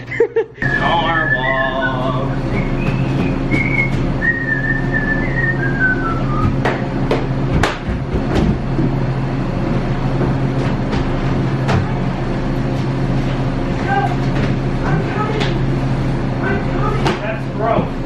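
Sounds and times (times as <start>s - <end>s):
low machine hum: 0.0s - 18.0s
person whistling a tune: 0.6s - 6.6s
footsteps on stairs: 6.3s - 11.4s.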